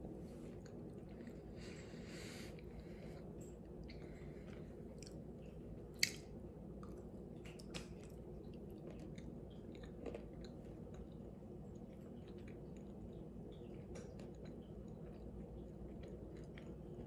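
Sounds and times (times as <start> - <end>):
person chewing: 0.3 - 17.0.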